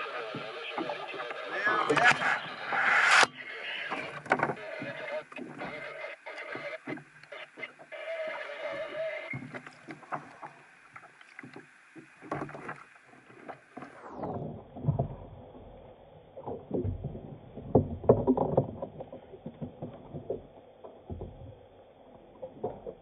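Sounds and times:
knocks and bumps on a kayak: 13.4 - 15.8, 16.5 - 23.0.

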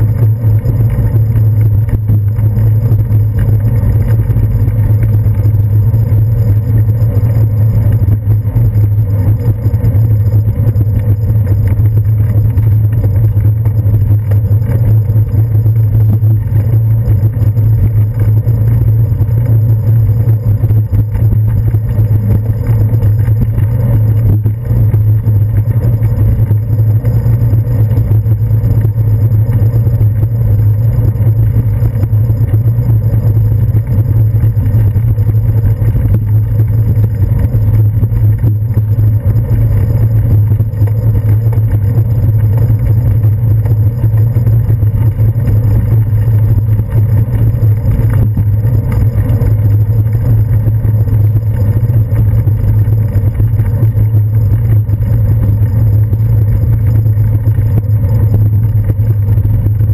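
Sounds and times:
road vibration rumble: 0.0 - 59.9.

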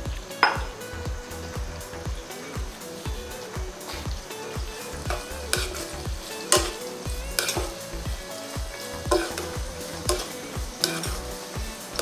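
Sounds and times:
vegetables sizzling in hot oil: 0.0 - 12.0
spatula scraping a pan: 5.1 - 7.9, 8.8 - 12.0.

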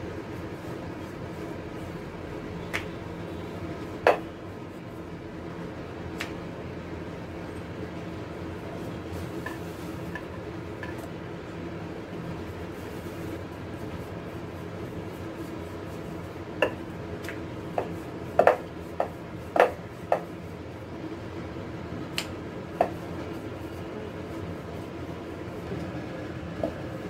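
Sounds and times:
steady low hum: 0.0 - 27.0
rolling pin knocking on stone board: 4.0 - 4.3, 17.7 - 20.3.

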